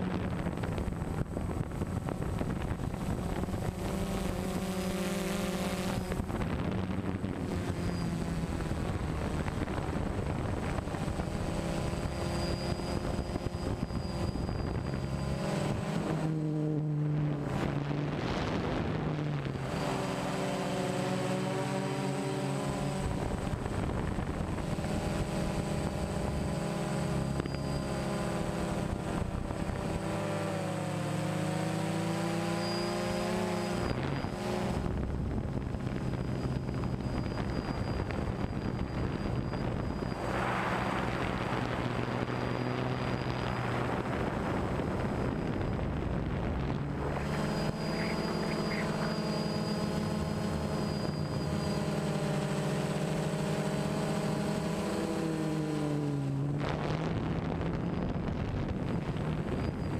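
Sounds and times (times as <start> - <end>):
drone motors whining: 0.0 - 59.9.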